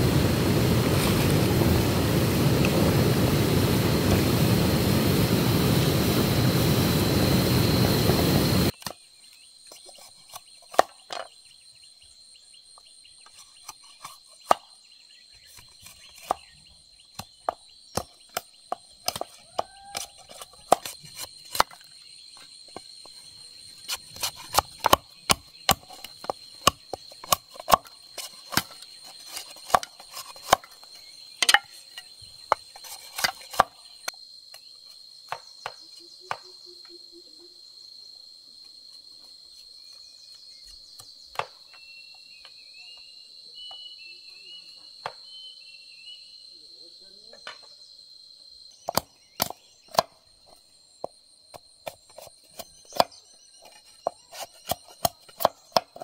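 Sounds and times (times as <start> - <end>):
insects droning: 0.0 - 56.0
machete splitting bamboo: 18.0 - 21.9, 23.9 - 30.8, 31.4 - 31.9, 32.5 - 33.8, 48.9 - 50.2, 54.1 - 56.0.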